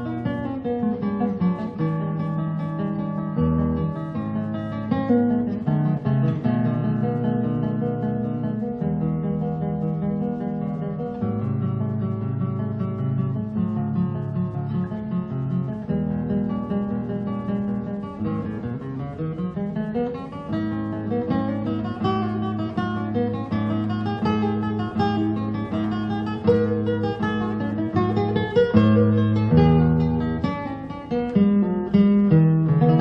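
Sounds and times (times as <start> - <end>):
acoustic guitar music: 0.0 - 33.0.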